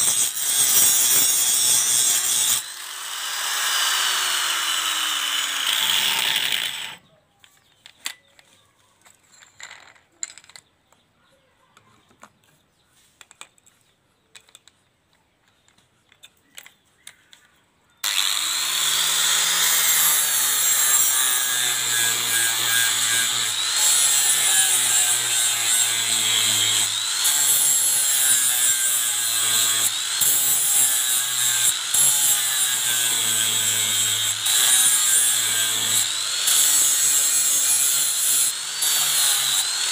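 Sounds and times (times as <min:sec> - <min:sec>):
angle grinder grinding steel: 0:00.0 - 0:07.0, 0:18.0 - 0:39.9.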